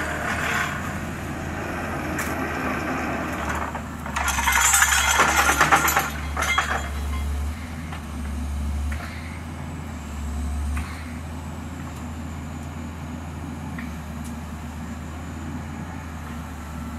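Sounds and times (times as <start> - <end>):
excavator engine running: 0.0 - 16.9
pile hammer rattling: 3.4 - 7.2.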